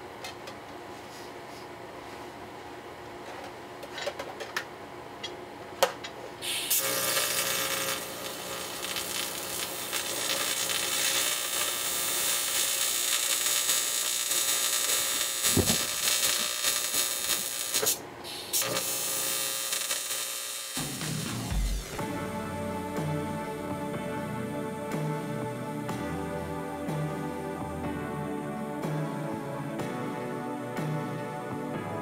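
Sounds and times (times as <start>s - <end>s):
welding arc hissing: 6.4s - 22.0s.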